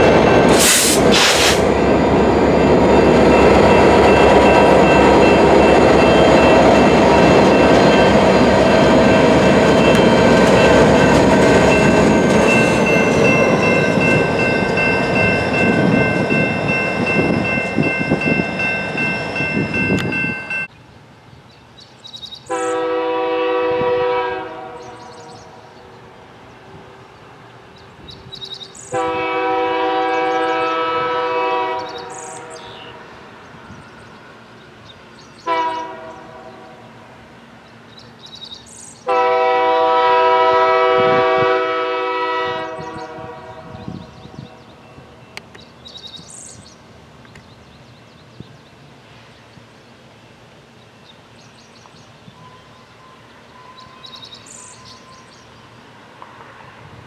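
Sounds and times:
diesel locomotives rolling past: 0:00.0 - 0:57.0
rail and wheel noise: 0:00.0 - 0:57.0
locomotive air horn blasts: 0:22.5 - 0:25.1, 0:28.9 - 0:32.8, 0:35.5 - 0:36.8, 0:39.1 - 0:44.1.

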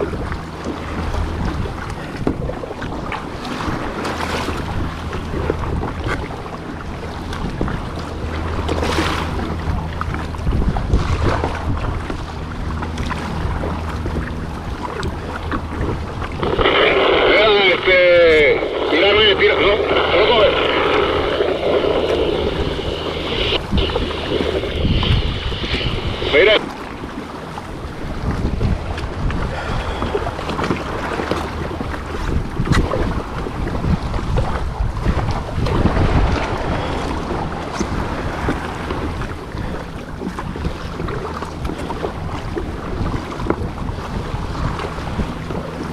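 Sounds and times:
water splashing and sloshing: 0:00.0 - 0:45.9
wind buffeting microphone: 0:00.0 - 0:45.9
steady low hum: 0:04.7 - 0:26.6.

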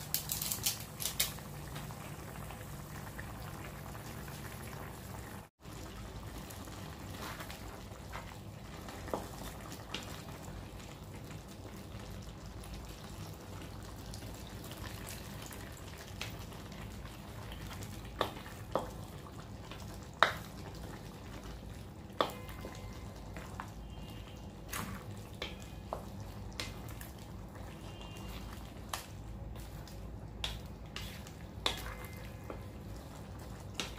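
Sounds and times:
meat frying in a wok: 0:00.0 - 0:33.9
wooden spatula scraping a wok: 0:30.5 - 0:32.0.

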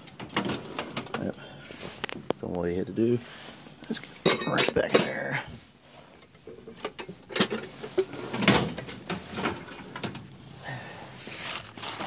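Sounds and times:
wrenches clinking on metal: 0:04.2 - 0:05.4, 0:06.6 - 0:10.1
drawer sliding on runners: 0:07.3 - 0:10.3.

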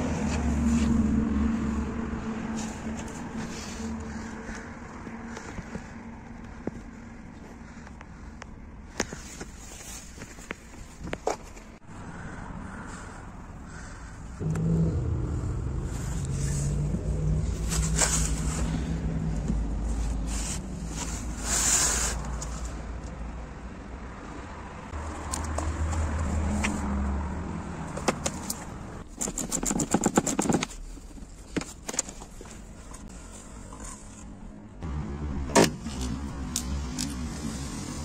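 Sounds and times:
vehicle engine running: 0:11.9 - 0:21.5
hand tools clicking and scraping: 0:28.0 - 0:34.3.

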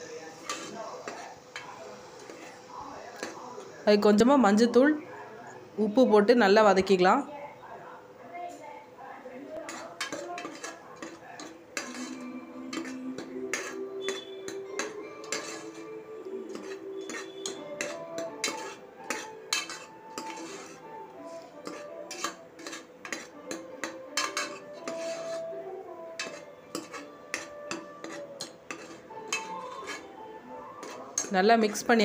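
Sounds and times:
paste frying: 0:00.0 - 0:04.7, 0:09.4 - 0:32.0
soft background music: 0:00.0 - 0:32.0
steel ladle scraping a pot: 0:00.4 - 0:03.4, 0:09.6 - 0:32.0.

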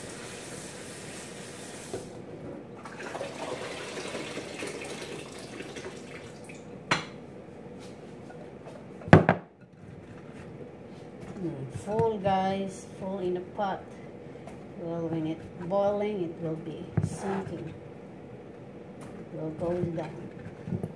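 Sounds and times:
water running into pot: 0:02.8 - 0:06.6.

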